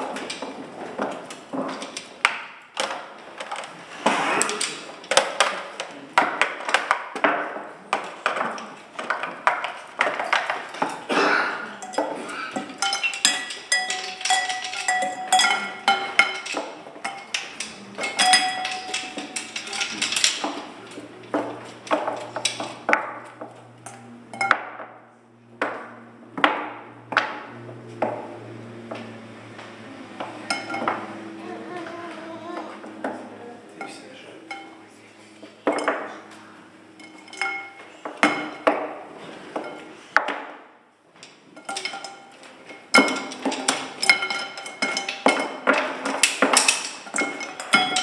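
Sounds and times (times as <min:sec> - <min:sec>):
knocks and clinks on hard objects: 0:00.0 - 0:31.4, 0:32.5 - 0:34.8, 0:35.5 - 0:48.0
low steady hum: 0:09.2 - 0:40.2
ringing strikes: 0:11.8 - 0:31.7, 0:32.5 - 0:39.0.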